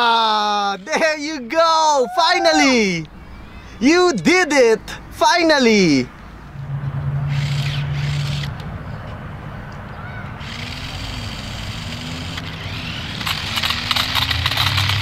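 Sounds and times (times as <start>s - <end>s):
low steady hum: 6.2s - 8.8s
toy electric motor whirring: 10.4s - 15.0s
rapid clicking and rattling: 13.2s - 15.0s.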